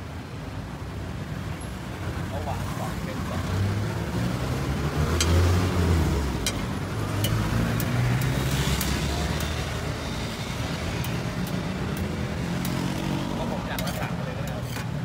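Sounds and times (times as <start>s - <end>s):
road traffic: 0.0s - 15.0s
vehicle engine humming: 2.3s - 15.0s.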